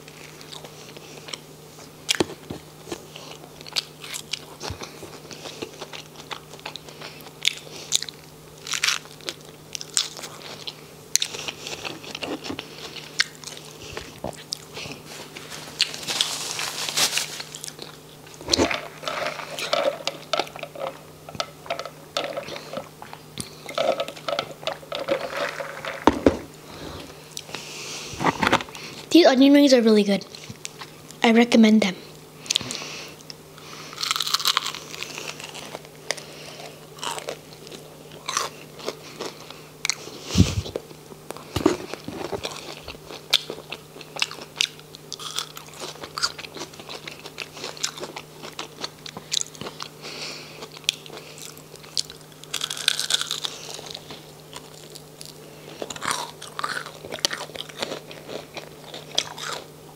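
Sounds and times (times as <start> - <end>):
chewing and biting burger: 0.1 - 16.3, 33.9 - 59.7.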